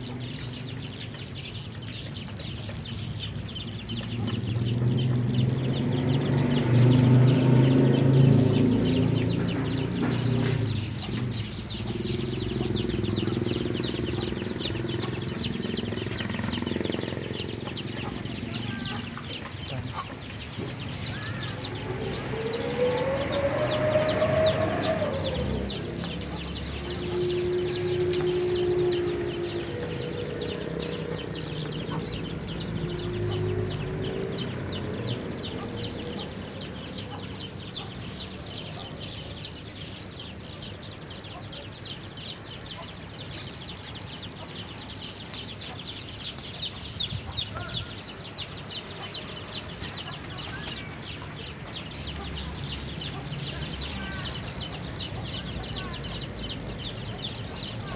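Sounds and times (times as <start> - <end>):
low engine hum: 0.0 - 41.4.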